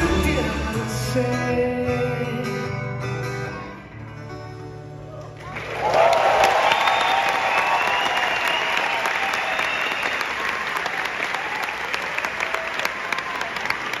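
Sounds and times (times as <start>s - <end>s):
audience applauding and cheering: 5.1s - 14.0s.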